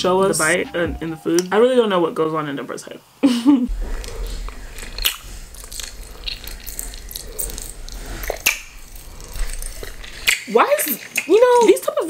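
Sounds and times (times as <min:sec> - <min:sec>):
wet mouth sounds chewing: 0:03.7 - 0:11.3.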